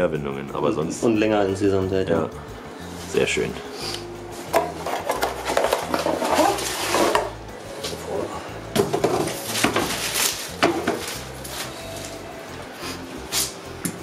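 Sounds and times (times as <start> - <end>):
cardboard and plastic bag rustling: 4.4 - 12.3.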